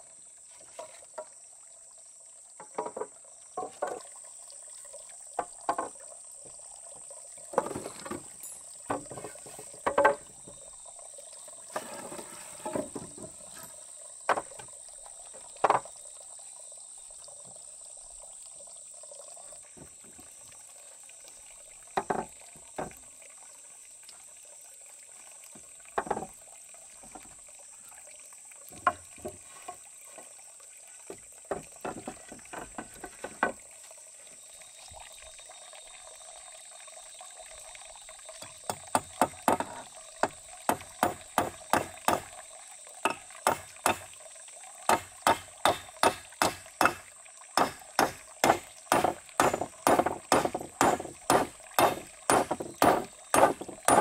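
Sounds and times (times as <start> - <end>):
hammer striking wooden poles: 38.7 - 42.3, 43.1 - 44.1, 44.9 - 54.0.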